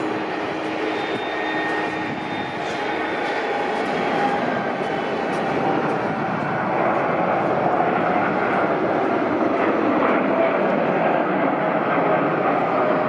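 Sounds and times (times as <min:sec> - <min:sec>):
jet engines at takeoff thrust: 0:00.0 - 0:13.0.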